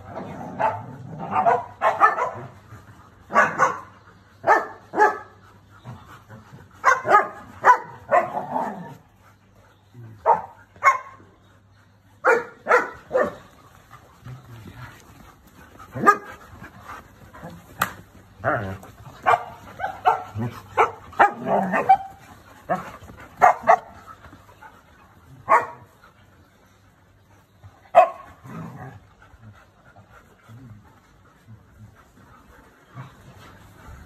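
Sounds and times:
dogs barking: 0.0s - 5.4s, 6.8s - 9.0s, 10.2s - 11.3s, 12.2s - 13.6s, 15.7s - 24.1s, 25.4s - 26.0s, 27.9s - 29.0s.

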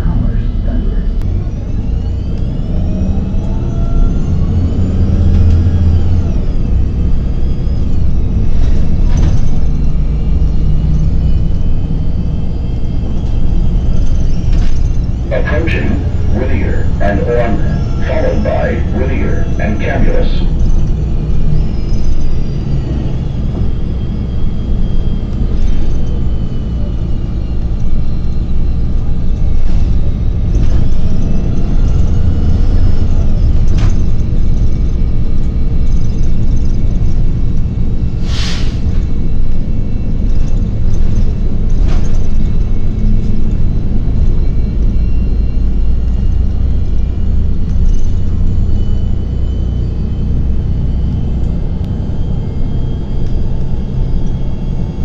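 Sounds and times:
bus engine and road rumble: 0.0s - 55.0s
faint whines: 3.4s - 38.2s, 39.0s - 55.0s
air brake hiss: 38.2s - 39.0s.

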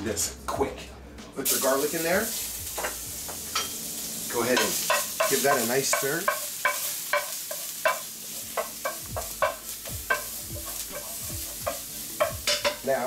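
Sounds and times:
garlic sizzling in oil: 1.4s - 13.0s
spoon knocking against pan: 4.6s - 12.8s.

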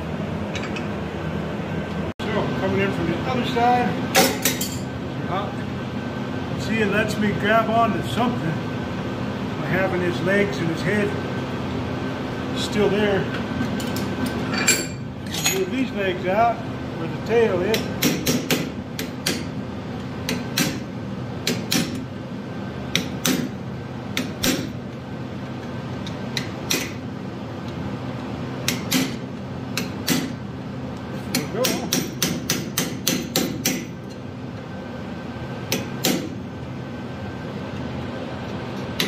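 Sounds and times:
hammer striking hot steel: 17.7s - 19.6s, 20.3s - 22.1s, 22.9s - 23.6s, 24.2s - 24.8s, 28.6s - 30.4s, 31.3s - 34.1s, 35.7s - 36.4s.

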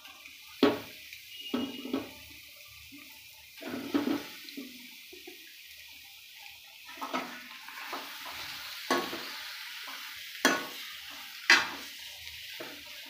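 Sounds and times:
fish sizzling in hot oil: 0.0s - 13.0s
metal spatula scraping pan: 3.6s - 4.4s.

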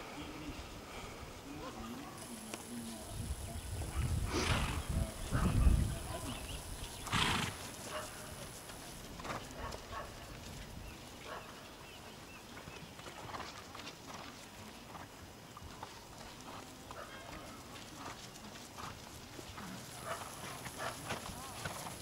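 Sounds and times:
horse hoofbeats on grass: 1.6s - 22.0s
horse blowing: 4.0s - 5.0s, 7.0s - 8.1s.

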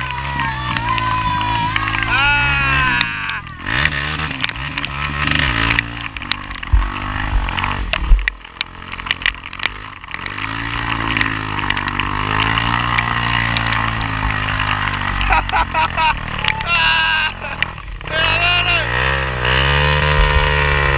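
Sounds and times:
atv engine revving: 0.0s - 20.9s
wheels spinning in mud: 0.0s - 20.9s
clicks of flung mud: 2.9s - 18.0s.

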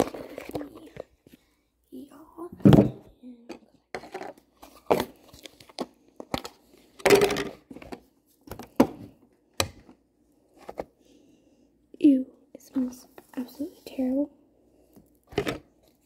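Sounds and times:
crinkling handling noise: 0.0s - 1.6s, 3.5s - 9.2s, 9.8s - 11.1s.

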